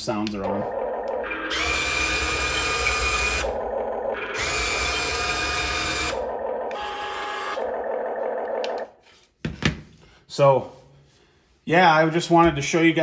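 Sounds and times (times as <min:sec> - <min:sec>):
electric motors whirring: 0:00.7 - 0:08.9.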